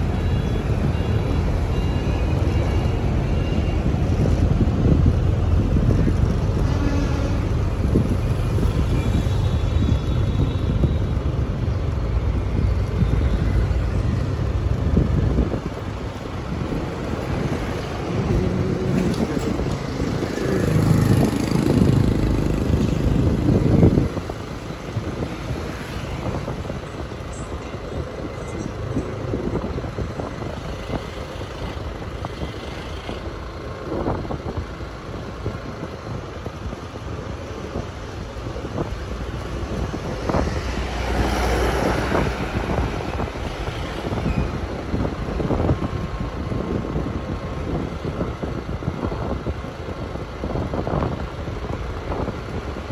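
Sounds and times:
road traffic rumble: 0:00.0 - 0:52.9
wind buffeting microphone: 0:00.0 - 0:52.9.

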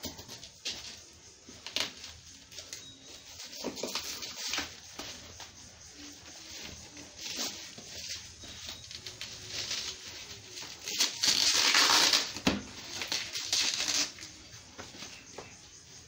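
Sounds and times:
plastic wrap crinkling: 0:05.9 - 0:14.5.

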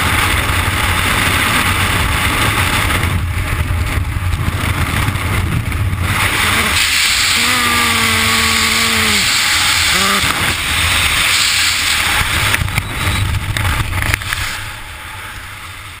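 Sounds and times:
wind rushing over microphone: 0:00.0 - 0:16.0
person shouting: 0:06.4 - 0:10.4.

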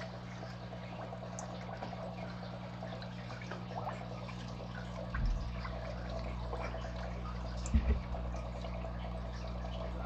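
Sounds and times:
steady low hum: 0:00.0 - 0:10.0
water trickling and dripping: 0:00.0 - 0:10.0
short dull bump: 0:07.7 - 0:08.1.

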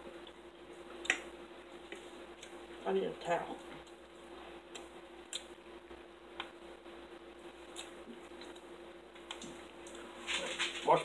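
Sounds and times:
faint clicks and taps: 0:04.7 - 0:06.6, 0:07.8 - 0:10.0.

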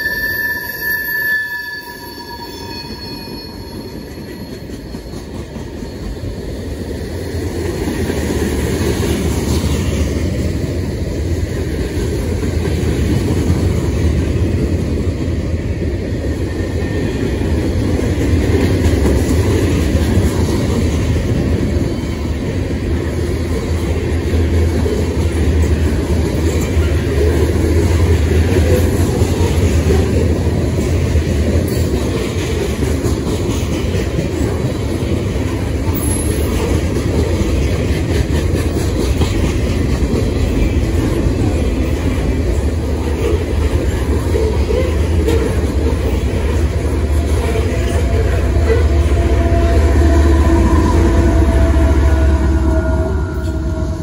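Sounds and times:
high ringing tone: 0:00.0 - 0:06.4, 0:36.0 - 0:36.5, 0:48.9 - 0:54.0
train cars rumbling on rails: 0:00.0 - 0:54.0.

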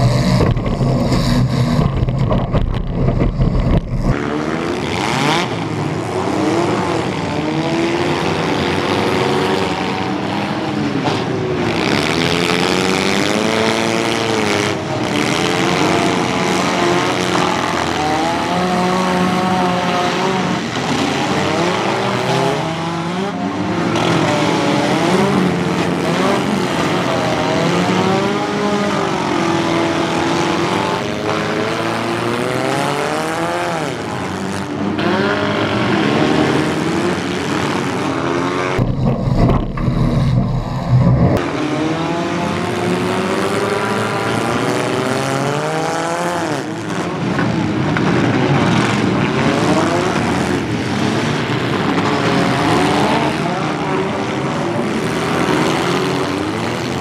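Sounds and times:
car engines revving hard: 0:00.0 - 0:57.0.

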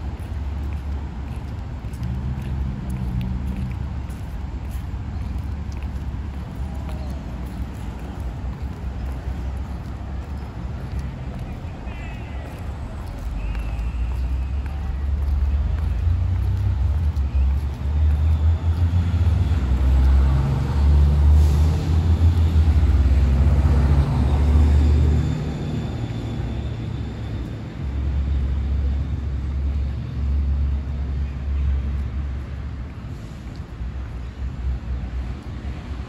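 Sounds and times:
steady low traffic rumble: 0:00.0 - 0:36.0
vehicle passing: 0:12.3 - 0:26.8.

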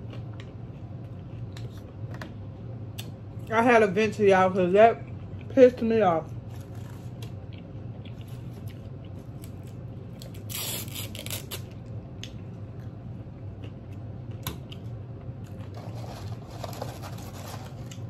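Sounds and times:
food packaging crinkling: 0:08.2 - 0:11.7, 0:15.5 - 0:18.0
soft paper rustle: 0:15.8 - 0:18.0.

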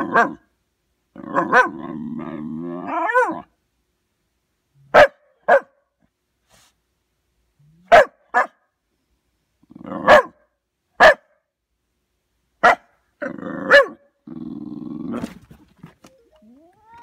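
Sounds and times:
dog barking: 0:00.0 - 0:00.4, 0:01.3 - 0:01.8, 0:02.9 - 0:03.4, 0:04.9 - 0:05.8, 0:07.8 - 0:08.6, 0:10.0 - 0:10.4, 0:11.0 - 0:11.4, 0:12.6 - 0:12.9, 0:13.7 - 0:14.0
dog growling: 0:01.2 - 0:03.5, 0:13.2 - 0:15.5.

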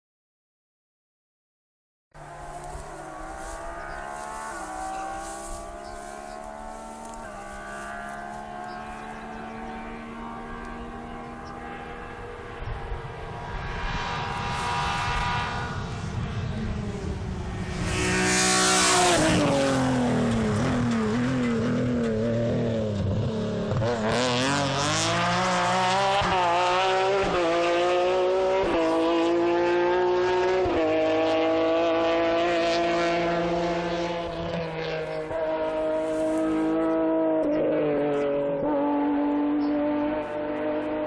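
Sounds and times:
rally car engine accelerating: 0:02.2 - 0:41.0.

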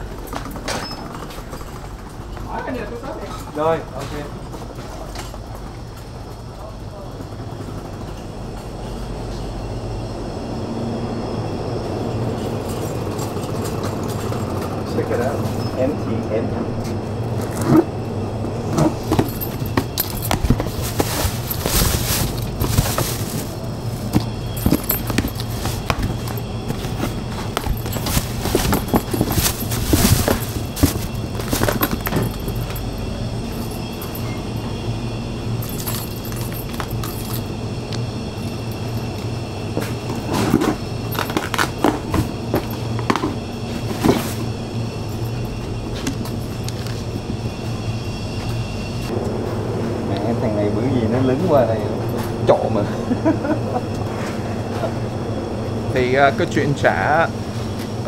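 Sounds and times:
steady low hum: 0:00.0 - 0:58.0
cardboard carton being handled: 0:18.7 - 0:32.8
plastic bag rustling: 0:18.9 - 0:32.9.

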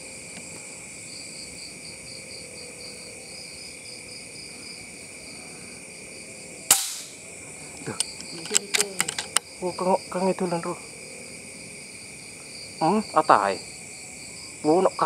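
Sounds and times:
crickets chirping: 0:00.0 - 0:15.0
insect pulsing trill: 0:00.0 - 0:15.0
rifle shot: 0:06.7 - 0:07.2.

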